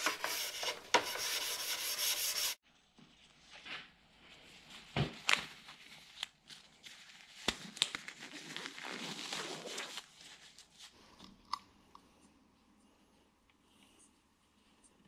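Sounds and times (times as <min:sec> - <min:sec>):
rubber gloves rustling: 0:00.0 - 0:11.0.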